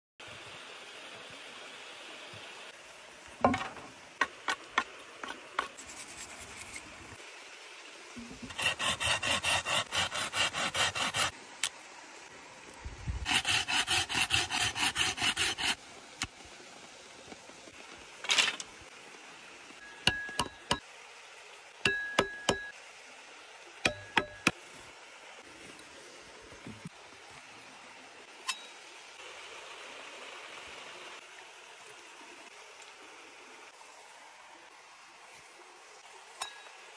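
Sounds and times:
knife scraping bark off stick: 0:08.4 - 0:11.3, 0:13.3 - 0:15.8.

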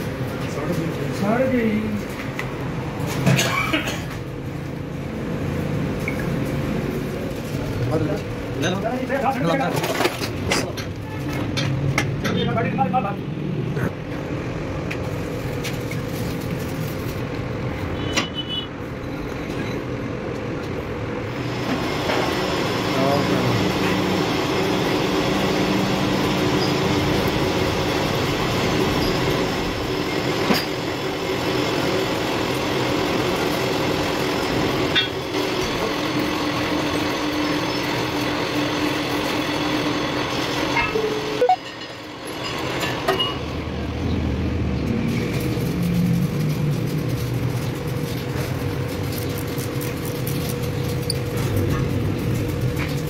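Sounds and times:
machinery humming: 0:21.2 - 0:53.0.

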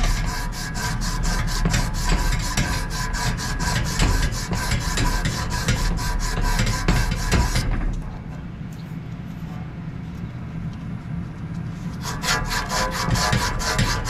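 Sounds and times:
metal rasping on fan motor shaft: 0:00.0 - 0:08.2, 0:11.8 - 0:14.0.

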